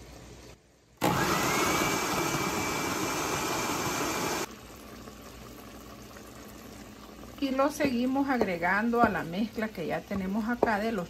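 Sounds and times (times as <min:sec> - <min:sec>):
blender motor whine: 0:01.0 - 0:04.5.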